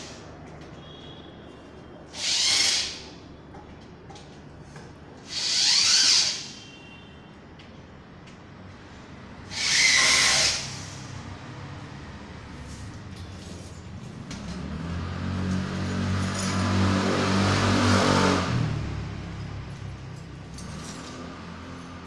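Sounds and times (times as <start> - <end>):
electric drill bursts: 2.1 - 3.2, 5.2 - 6.7, 9.5 - 11.1.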